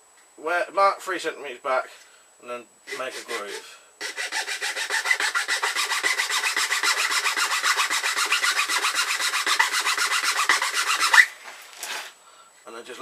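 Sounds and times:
file rasping on wood: 2.9 - 11.3.

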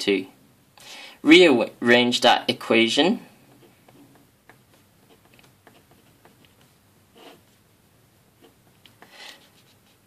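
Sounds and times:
pen scratching on paper: 3.6 - 7.6, 8.4 - 10.0.

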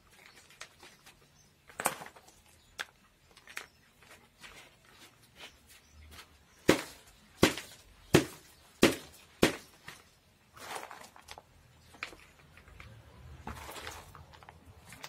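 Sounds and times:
bark chips rustling: 9.6 - 12.4.

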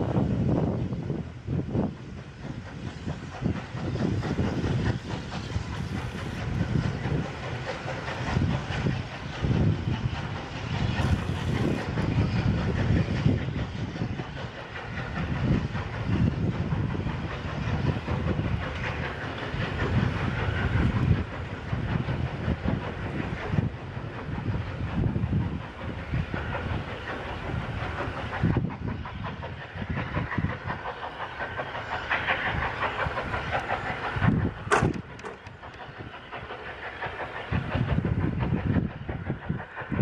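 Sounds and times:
steam hissing: 0.0 - 40.0
steam locomotive chuffing: 0.0 - 40.0
wheels clicking over rail joints: 14.1 - 38.3.

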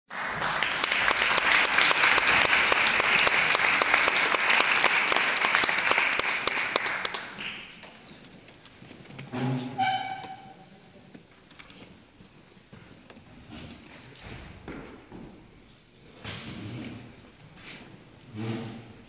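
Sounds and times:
audience applause: 0.1 - 8.1.

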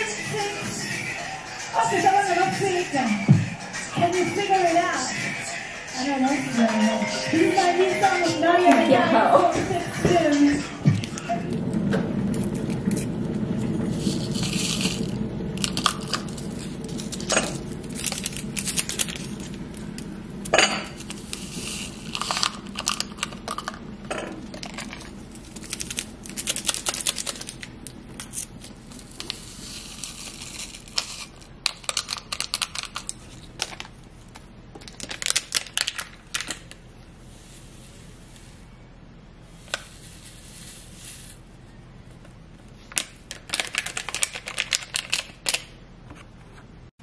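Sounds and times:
low hum: 5.1 - 31.7
plastic sachets crinkling and tearing: 13.9 - 23.8, 24.6 - 34.0, 34.8 - 36.8, 42.9 - 45.7.

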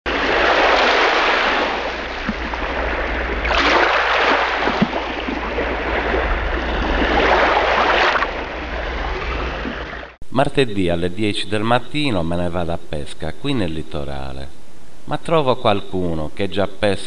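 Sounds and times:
sea water sloshing: 0.1 - 10.2.

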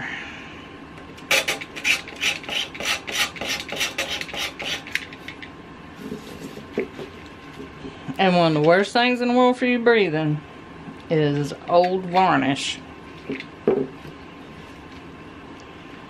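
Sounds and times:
blade scraping paint off wood: 1.3 - 4.9.

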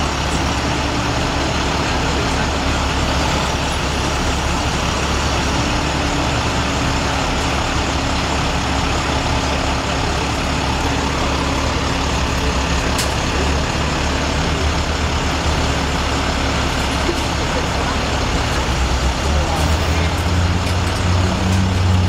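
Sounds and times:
truck engine running: 0.0 - 22.0.

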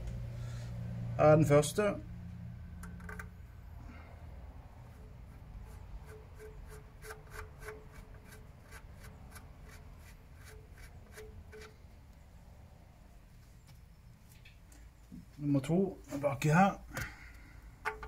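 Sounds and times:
squeaky clicks of screw threads: 5.7 - 11.8.

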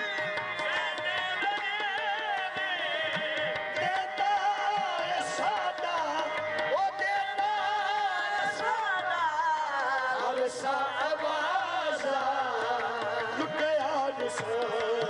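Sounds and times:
harmonium note: 0.0 - 15.0
men singing: 0.0 - 15.0.

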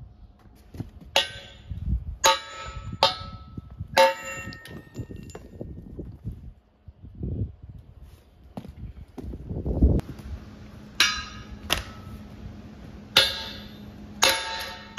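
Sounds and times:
sledgehammer clanging on steel: 1.2 - 5.6, 11.0 - 12.2, 13.1 - 14.9.

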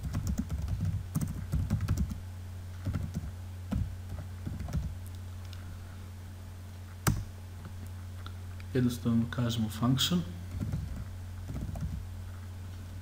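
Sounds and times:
typing on computer keyboard: 0.0 - 2.2, 2.8 - 4.9, 10.5 - 12.0.

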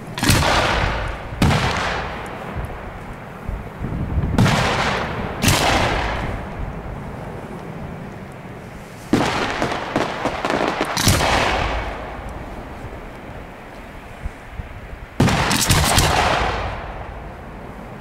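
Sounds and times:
firework crackling: 0.0 - 18.0
firework shells bursting: 0.2 - 3.2, 9.1 - 12.4.

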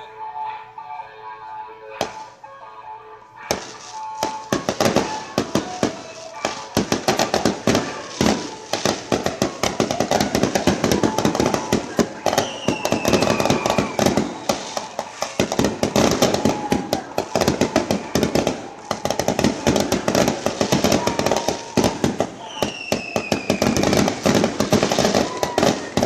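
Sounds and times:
fireworks crackling and banging: 1.9 - 2.5, 3.3 - 26.0
whistling tone sliding down: 12.2 - 15.0, 22.4 - 24.1.

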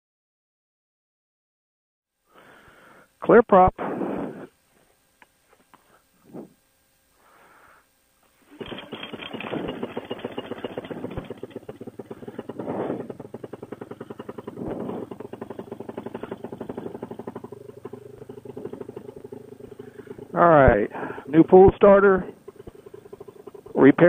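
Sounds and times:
engine pull-start: 8.5 - 24.0
engine revving: 8.5 - 24.0
two-stroke engine idling: 8.5 - 24.0.

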